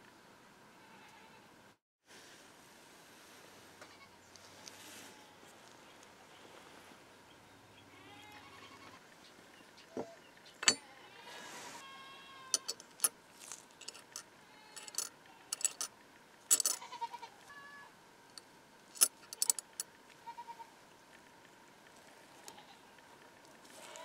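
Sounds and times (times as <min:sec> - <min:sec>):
small metal parts clicking: 0:10.6 - 0:10.8, 0:12.5 - 0:14.2, 0:14.8 - 0:15.9, 0:16.5 - 0:16.9, 0:18.3 - 0:19.9
metal scrape: 0:10.6 - 0:11.8, 0:12.5 - 0:14.2, 0:14.8 - 0:15.9, 0:16.5 - 0:16.9, 0:18.9 - 0:19.8.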